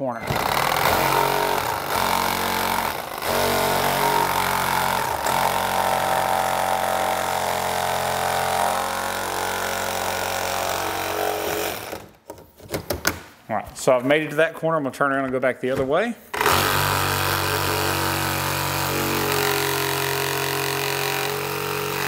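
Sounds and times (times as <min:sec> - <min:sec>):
reciprocating saw cutting: 0:00.2 - 0:12.1, 0:16.4 - 0:22.0.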